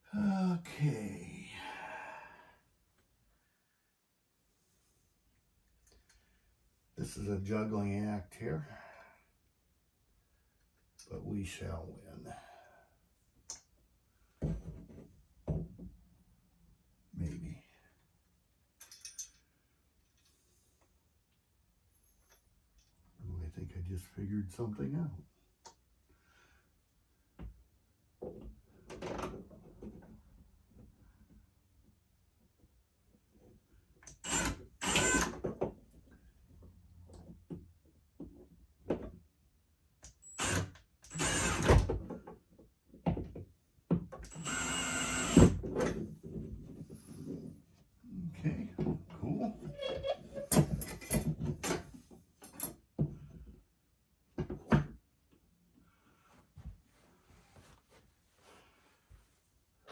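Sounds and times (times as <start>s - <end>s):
cordless drill driving screws: 34.1s - 35.4s, 40.2s - 41.8s, 44.3s - 45.6s.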